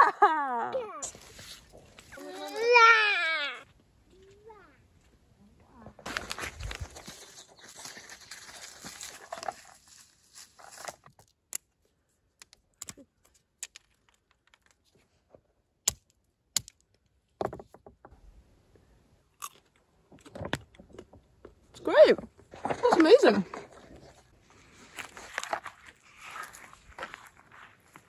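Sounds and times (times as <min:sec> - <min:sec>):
rustling: 0:01.0 - 0:02.9, 0:05.7 - 0:11.1
almond shells cracking on rock: 0:15.8 - 0:17.0.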